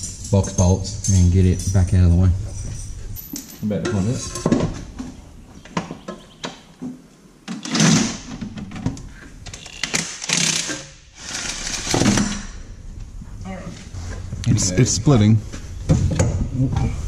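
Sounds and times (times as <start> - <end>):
impact wrench rattling: 9.7 - 12.6.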